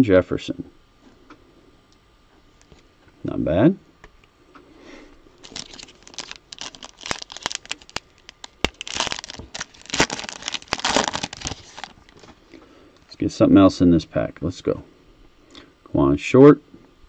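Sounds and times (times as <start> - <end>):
plastic wrapper crinkling and tearing: 5.4 - 12.5.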